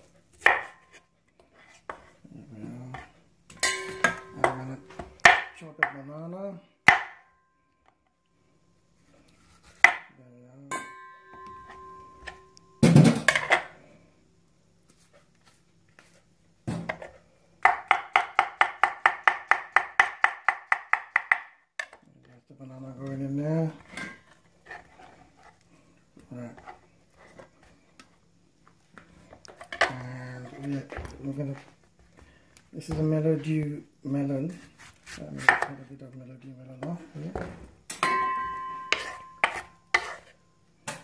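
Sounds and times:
knife chopping on wooden board: 0.4s - 0.7s, 17.7s - 21.5s.

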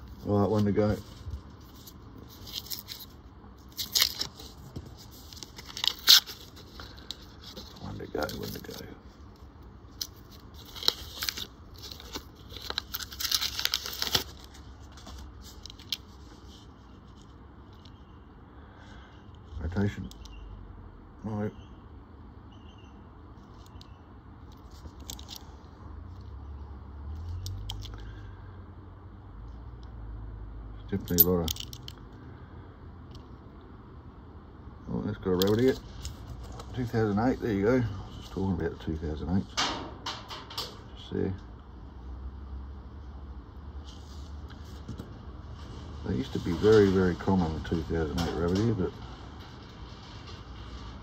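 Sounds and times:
low steady rumble: 0.0s - 22.4s, 23.1s - 51.0s
paper wrapper tearing: 2.3s - 8.8s, 10.0s - 16.0s.

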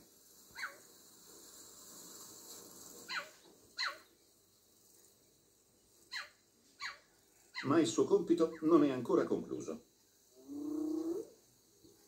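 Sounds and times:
cheetah chirping: 0.5s - 0.9s, 3.1s - 4.1s, 6.0s - 7.8s.

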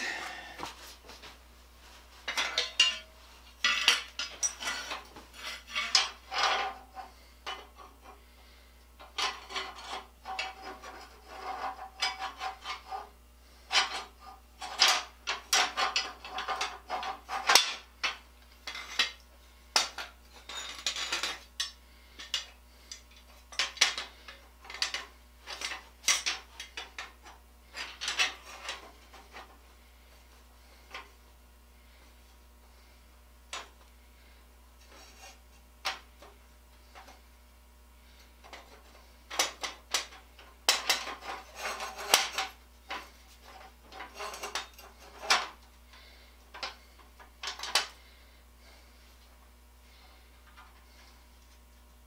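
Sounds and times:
metal parts clinking and rattling: 2.3s - 7.7s, 13.7s - 19.2s, 19.8s - 29.5s, 38.4s - 45.6s, 47.4s - 48.0s.

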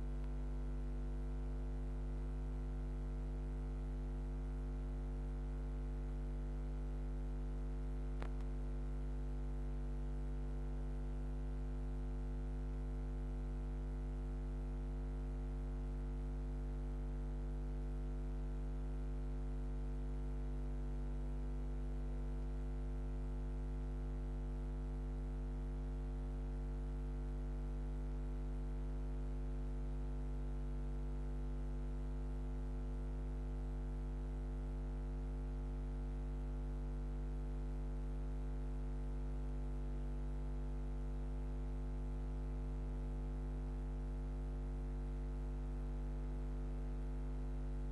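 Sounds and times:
electrical mains hum: 0.0s - 10.3s.

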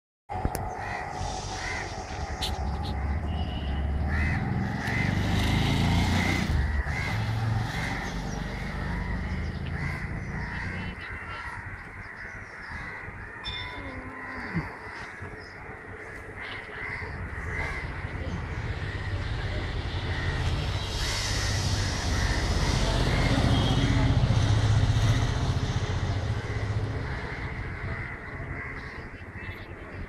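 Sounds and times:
low rumble: 0.3s - 5.3s, 6.4s - 29.1s
crows cawing: 0.7s - 24.0s, 26.1s - 29.8s.

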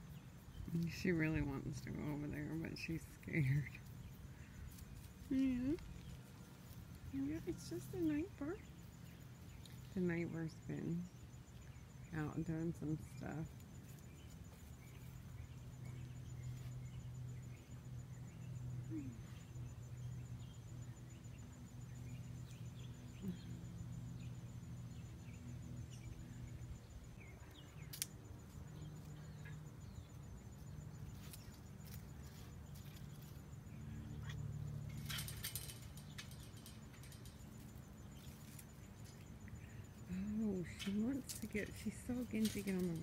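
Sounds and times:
steady low hum: 0.0s - 43.0s
faint bird chirps: 7.0s - 43.0s
rustling and clicking: 34.2s - 39.6s, 40.6s - 43.0s.

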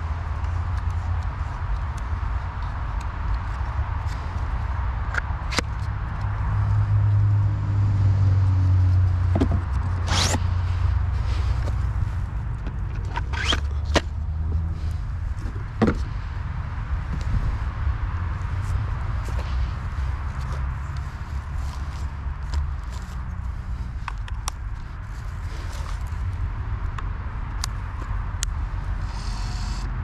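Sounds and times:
low steady rumble: 5.8s - 30.0s
stick scraping through bracket: 10.0s - 10.5s, 13.0s - 14.0s.

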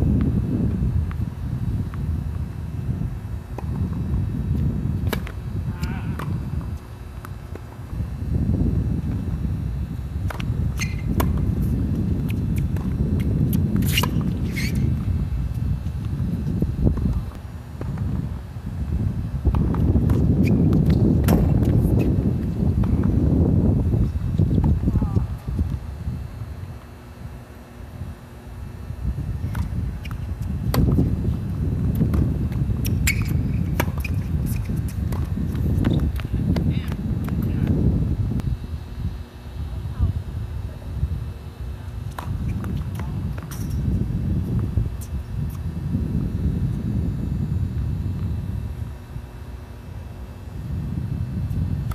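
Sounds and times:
wind buffeting microphone: 0.0s - 51.9s
tennis ball bouncing: 5.0s - 5.4s
racket striking ball: 5.0s - 6.4s.

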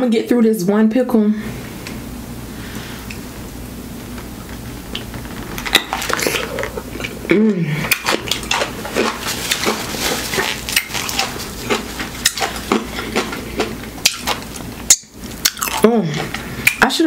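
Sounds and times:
wet crunchy chewing: 5.0s - 16.8s
person humming groan: 6.2s - 7.9s.

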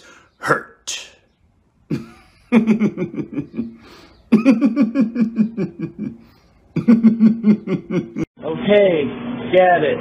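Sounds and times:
man laughing: 1.9s - 8.3s.

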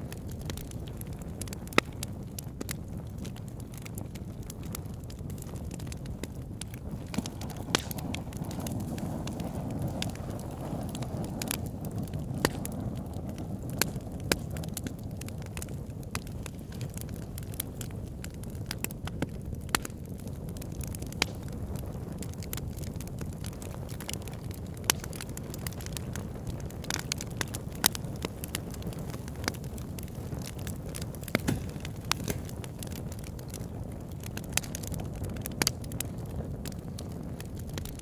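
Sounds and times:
fire crackling and popping: 0.0s - 38.0s.

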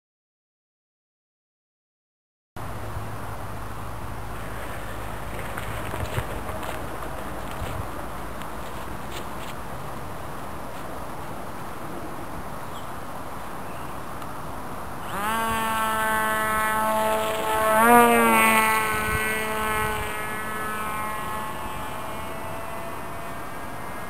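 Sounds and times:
electric motor and propeller whine: 2.6s - 10.7s, 14.5s - 24.0s.

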